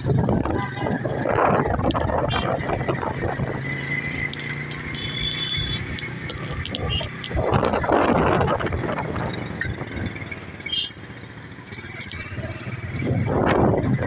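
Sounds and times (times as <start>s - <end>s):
wind buffeting microphone: 0.0s - 3.7s, 6.0s - 10.4s, 12.7s - 14.0s
motorcycle engines in traffic: 0.0s - 14.0s.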